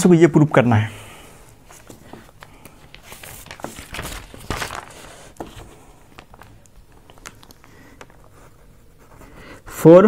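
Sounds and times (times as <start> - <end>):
paper rustling: 1.6 - 9.3
paper tapping: 1.8 - 8.3.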